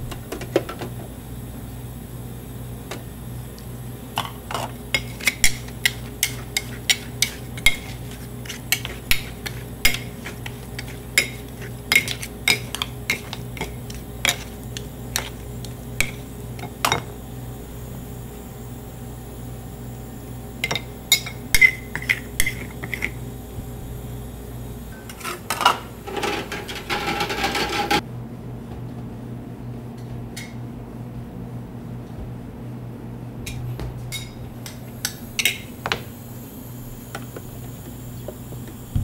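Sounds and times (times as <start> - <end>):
spatulas scraping stone slab: 5.0 - 15.7.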